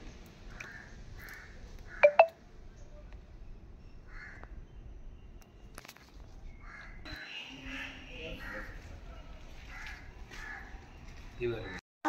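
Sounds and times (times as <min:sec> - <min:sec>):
short sharp beeps: 0:02.0 - 0:02.3
crows cawing: 0:09.6 - 0:10.8.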